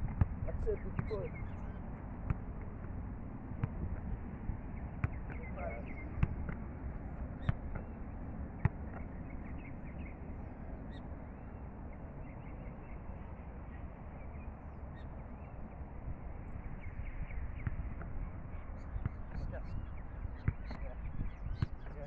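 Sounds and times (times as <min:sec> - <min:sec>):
football being kicked: 0:00.0 - 0:01.3, 0:02.2 - 0:04.2, 0:05.0 - 0:06.7, 0:07.4 - 0:08.0, 0:08.6 - 0:09.1, 0:17.6 - 0:18.2, 0:19.0 - 0:22.0
wind rumble on microphone: 0:00.0 - 0:22.0.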